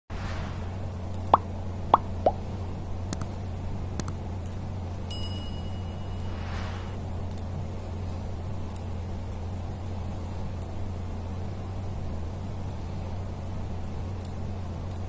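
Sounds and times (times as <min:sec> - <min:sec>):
low electrical hum: 0:00.1 - 0:15.0
cartoon pops dropping in pitch: 0:01.3 - 0:02.4.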